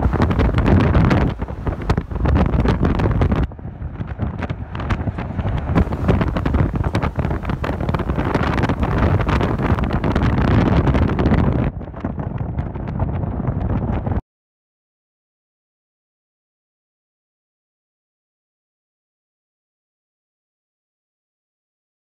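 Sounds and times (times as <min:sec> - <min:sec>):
car engine rumble: 0:00.0 - 0:14.0
road noise: 0:00.0 - 0:14.0
wind buffeting microphone: 0:00.0 - 0:14.2.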